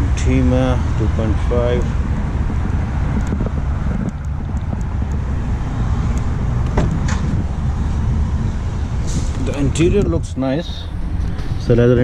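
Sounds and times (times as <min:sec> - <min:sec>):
road traffic rumble: 0:00.0 - 0:12.0
wind on microphone: 0:00.7 - 0:12.0.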